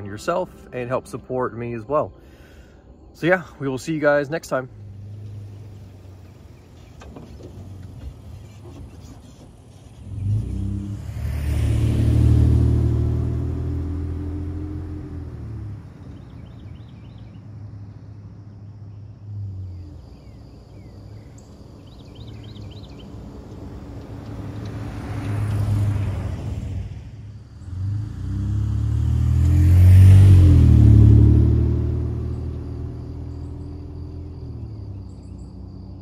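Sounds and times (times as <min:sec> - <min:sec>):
truck driving by on dirt road: 0:04.2 - 0:36.0
bird chirps: 0:16.0 - 0:24.8, 0:32.2 - 0:36.0.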